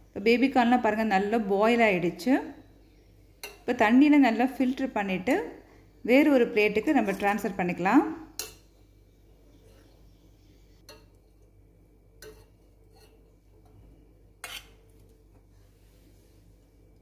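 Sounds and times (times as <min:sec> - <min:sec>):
spoon clinking against pot: 0:12.2 - 0:13.2.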